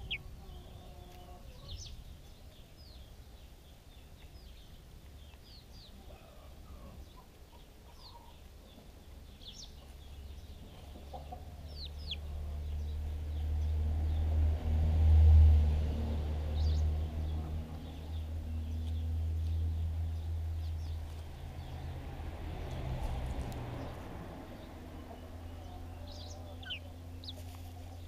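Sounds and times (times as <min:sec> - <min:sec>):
chickens clucking: 0:00.0 - 0:04.4, 0:05.0 - 0:13.7, 0:16.7 - 0:19.6, 0:22.6 - 0:28.0.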